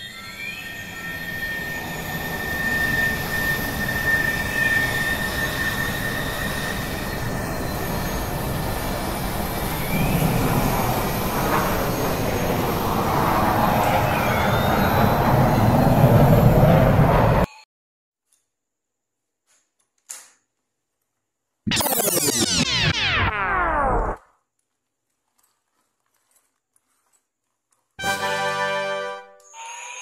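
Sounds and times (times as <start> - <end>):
gliding tones: 21.7 - 24.2
steady high tone: 21.7 - 24.2.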